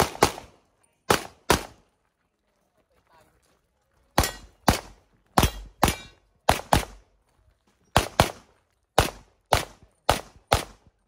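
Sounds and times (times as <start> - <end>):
pistol shots with echo: 0.0 - 1.8, 4.2 - 7.0, 8.0 - 10.9.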